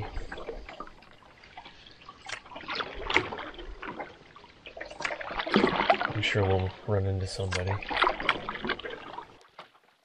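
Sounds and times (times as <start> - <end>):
water dripping off paddle: 0.0 - 6.6
canoe paddle strokes in water: 0.0 - 10.0.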